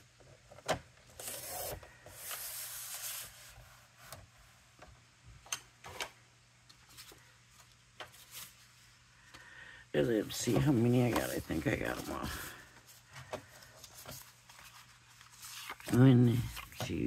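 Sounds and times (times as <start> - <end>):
card scraping and rustling: 1.0 - 4.2, 10.3 - 17.0.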